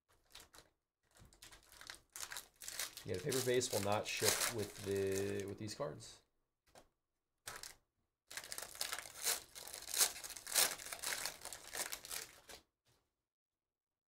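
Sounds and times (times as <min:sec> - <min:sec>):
plastic wrapper tearing: 0:00.1 - 0:05.6, 0:07.5 - 0:12.6
plastic wrapper crinkling: 0:00.1 - 0:05.8, 0:07.5 - 0:12.6.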